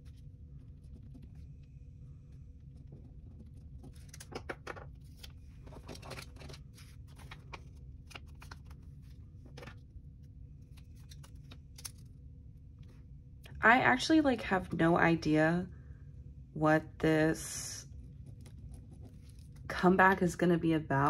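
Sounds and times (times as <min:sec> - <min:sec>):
faint low hum: 0:00.0 - 0:21.0
paper rustles and taps: 0:03.4 - 0:08.8, 0:09.5 - 0:09.8.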